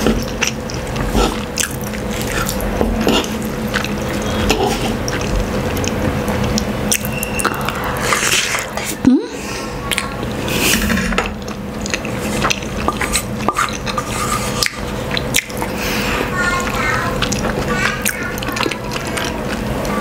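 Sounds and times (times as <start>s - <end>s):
chewing: 0.0s - 20.0s.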